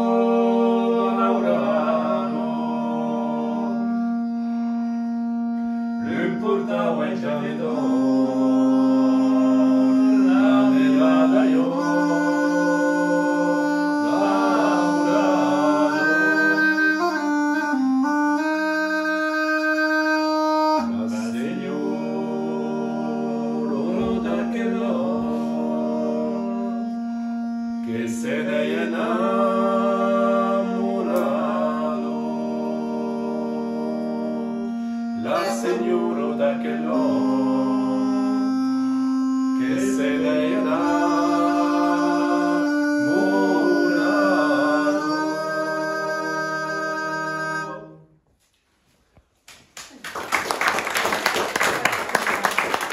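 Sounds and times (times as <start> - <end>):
bagpipe drone: 0.0 - 48.0
bagpipe tune: 0.0 - 48.0
man singing: 6.0 - 17.8, 27.8 - 47.8.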